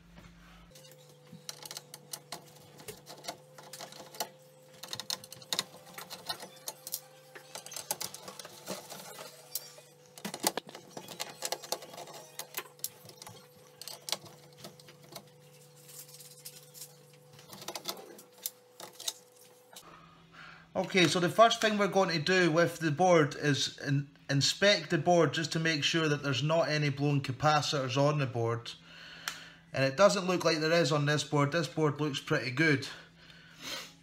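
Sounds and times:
screwdriver clicks and metal scrapes: 0.7 - 19.8.

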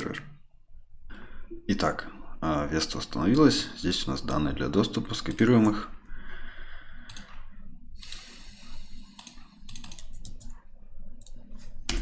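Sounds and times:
keyboard and mouse clicks: 7.1 - 7.4, 9.1 - 12.0.

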